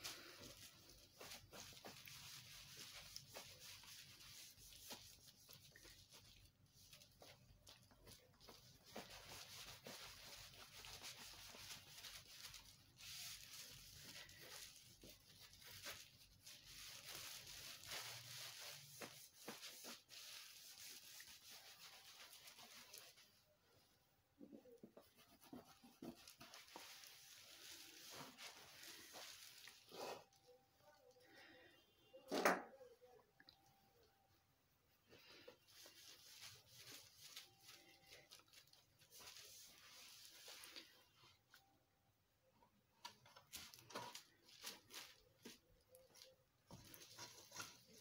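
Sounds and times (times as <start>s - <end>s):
cloth wiping glass: 0.0s - 23.4s.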